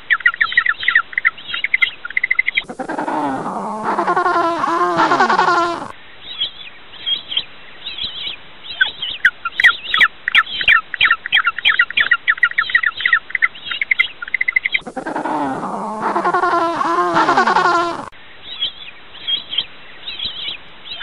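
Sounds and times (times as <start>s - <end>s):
penguin braying call: 2.6s - 5.9s, 14.8s - 18.1s.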